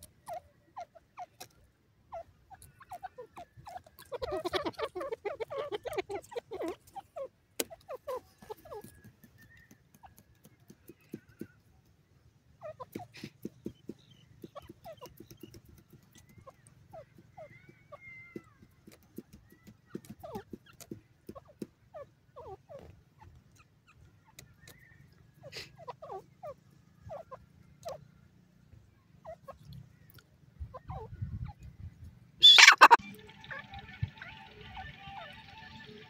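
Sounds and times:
bird calling: 0.0 - 11.7, 12.5 - 28.2, 32.4 - 36.0
faint clicks: 7.6 - 12.0.

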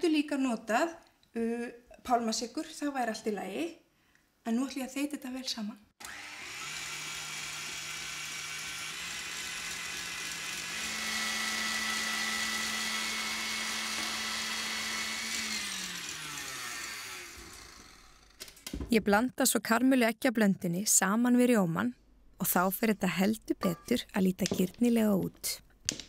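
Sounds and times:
stand mixer whisking in steel bowl: 6.1 - 18.0.

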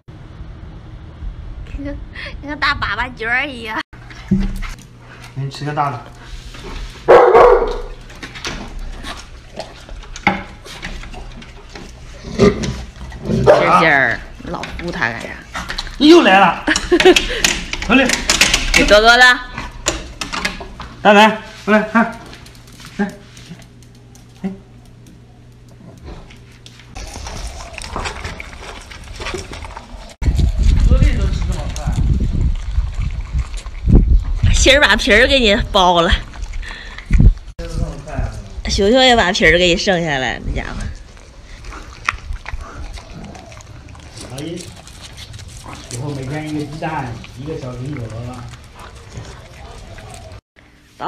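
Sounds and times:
dog chewing and licking: 4.0 - 21.0, 22.0 - 38.4, 40.8 - 50.4
dog barking: 7.1 - 8.0, 13.4 - 13.8.

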